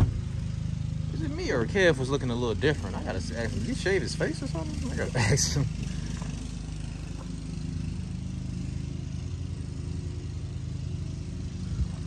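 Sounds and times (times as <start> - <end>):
low engine hum: 0.0 - 12.0.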